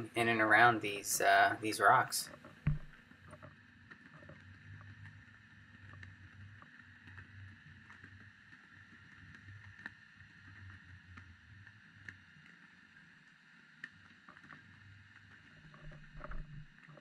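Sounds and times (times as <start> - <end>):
underwater low rumble: 2.4 - 17.0.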